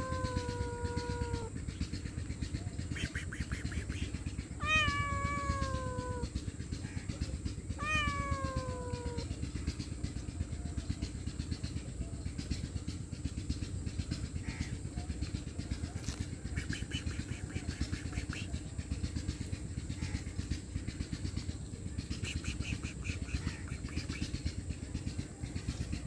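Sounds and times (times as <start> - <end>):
cat meowing: 0.0 - 1.5, 4.6 - 6.3, 7.7 - 9.3.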